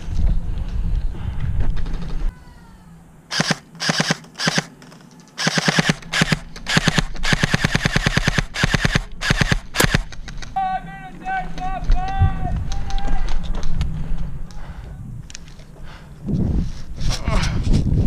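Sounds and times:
airsoft rifle firing bursts: 3.3s - 4.7s, 5.4s - 10.2s.

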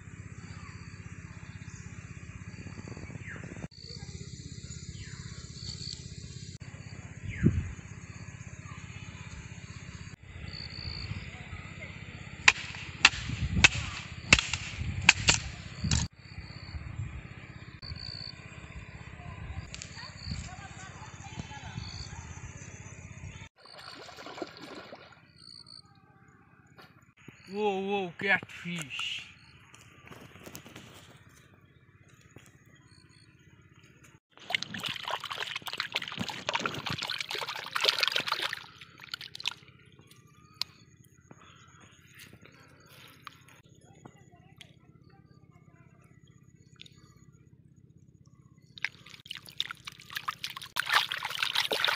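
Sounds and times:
wooden stick striking ground: 12.4s - 16.1s
muddy water splashing: 23.6s - 25.4s, 34.3s - 40.7s, 48.8s - 51.9s
fish thrashing with wet smacks: 34.4s - 39.6s, 48.8s - 51.9s.

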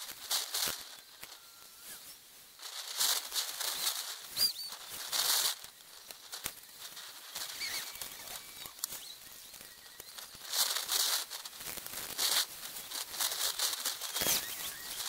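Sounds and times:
rustling hiss bursts: 0.0s - 15.0s
faint bird chirps: 0.8s - 2.2s, 3.6s - 10.9s, 14.0s - 15.0s.

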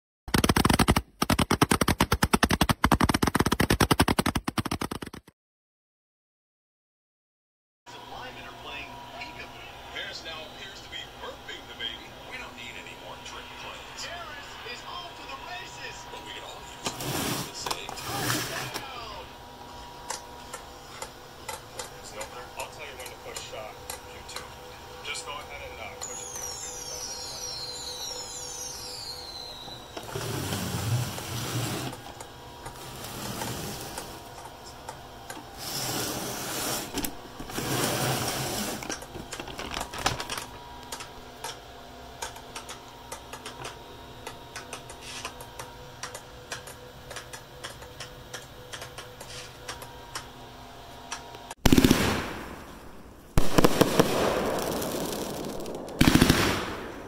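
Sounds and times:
firework hiss: 53.4s - 56.9s
firework launch bangs: 53.4s - 57.0s.

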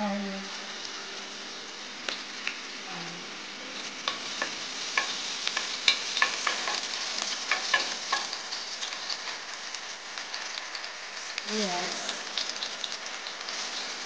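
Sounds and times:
food sizzling in oil: 0.0s - 14.0s
utensil stirring pan: 3.6s - 14.0s.

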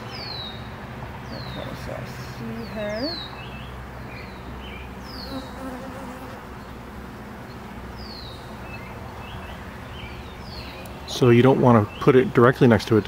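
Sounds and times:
honeybees buzzing: 4.5s - 11.1s.

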